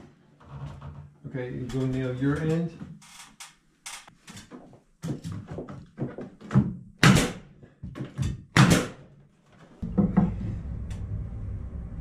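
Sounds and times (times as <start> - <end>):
nail gun firing into wood: 7.0 - 7.5, 8.6 - 9.0.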